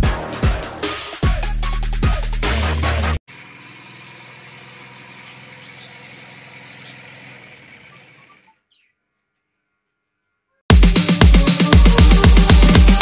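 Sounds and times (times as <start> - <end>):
electronic dance music: 0.0 - 3.2, 10.7 - 13.0.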